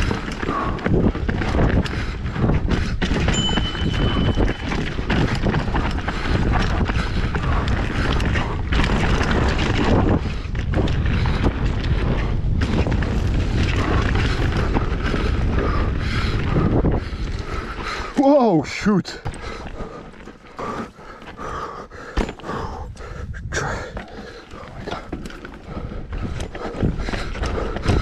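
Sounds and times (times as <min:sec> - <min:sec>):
bike knocks and rattles: 0:00.0 - 0:18.0, 0:19.2 - 0:22.9, 0:23.8 - 0:28.0
heavy steady rumble: 0:00.0 - 0:18.1
wind noise on microphone: 0:00.0 - 0:18.2, 0:21.3 - 0:28.0.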